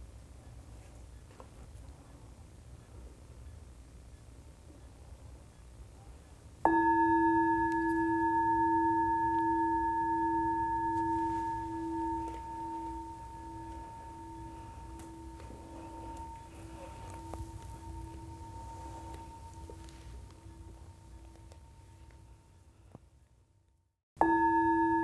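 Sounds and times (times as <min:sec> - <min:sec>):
singing bowl ringing: 0:06.7 - 0:22.4, 0:24.2 - 0:25.0.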